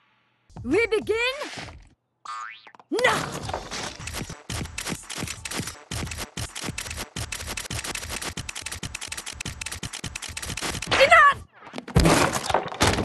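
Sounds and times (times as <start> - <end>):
cartoon camera shutter clicks: 3.8 - 11.0.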